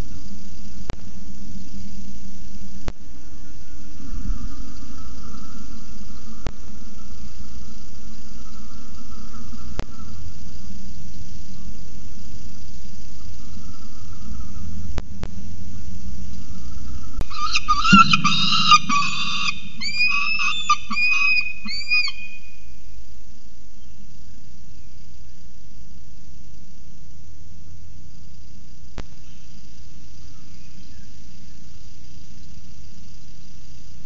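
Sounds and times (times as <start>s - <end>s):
arched falcon calls: 16.4s - 22.8s
falcon chattering calls: 17.2s - 22.5s.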